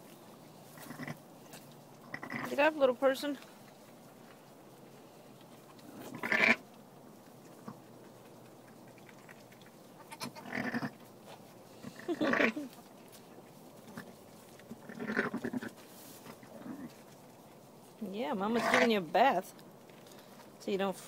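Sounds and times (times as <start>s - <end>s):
sheep bleating: 10.0s - 10.9s.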